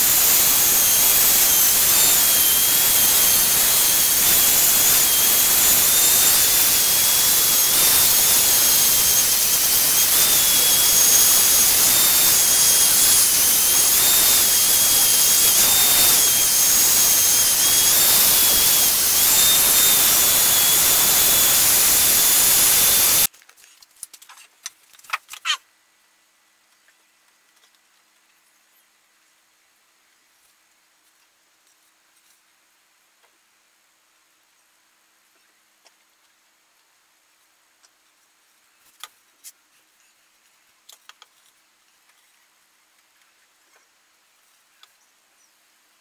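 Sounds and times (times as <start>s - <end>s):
angle grinder whine: 0.0s - 23.3s.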